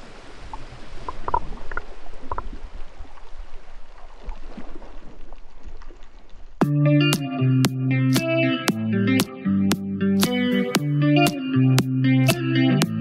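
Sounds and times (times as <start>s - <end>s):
water sloshing and gurgling: 0.0s - 6.6s
guitar-led music: 6.6s - 13.0s.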